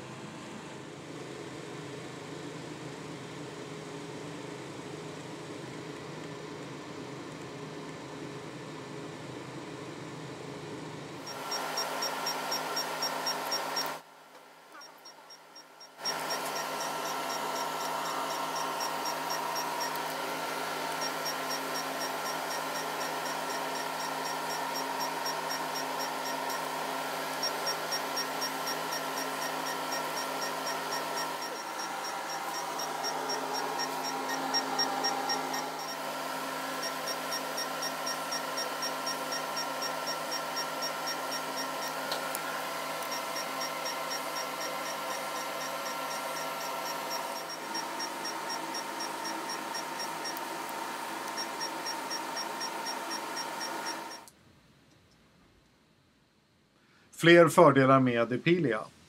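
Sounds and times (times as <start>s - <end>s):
cooling unit hum: 0.0s - 54.4s
laser pulse ticks: 11.3s - 14.0s, 14.7s - 36.0s, 36.8s - 54.3s.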